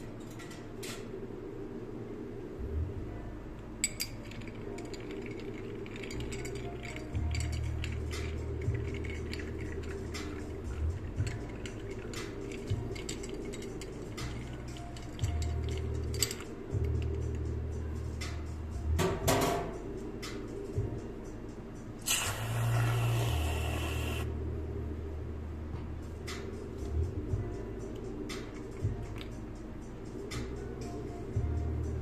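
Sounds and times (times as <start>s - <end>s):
spoon stirring ice in a glass: 3.8s - 17.4s.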